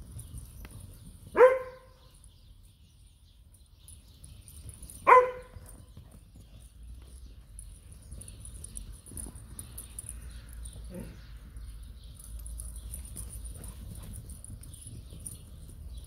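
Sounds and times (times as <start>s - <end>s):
dog barking: 1.4s - 2.0s, 5.0s - 5.6s.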